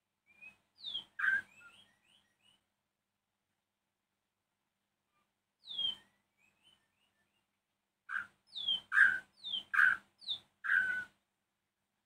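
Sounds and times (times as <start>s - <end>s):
bird calling sharp notes: 0.4s - 2.6s, 8.1s - 11.2s.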